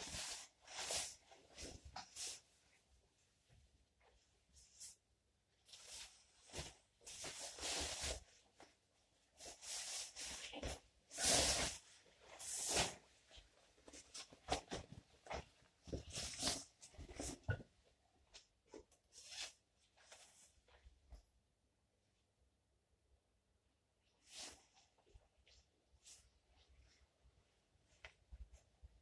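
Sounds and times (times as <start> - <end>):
fabric rustling: 0.0 - 21.2.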